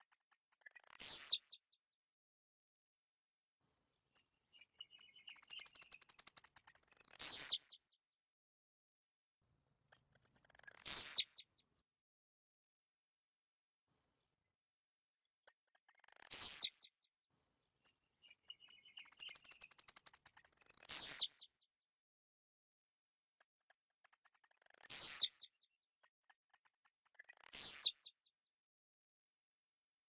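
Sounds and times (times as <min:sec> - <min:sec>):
bird singing high ticks and buzz: 0:00.0 - 0:01.8, 0:03.7 - 0:08.0, 0:09.9 - 0:11.6, 0:15.2 - 0:21.7, 0:23.4 - 0:28.4.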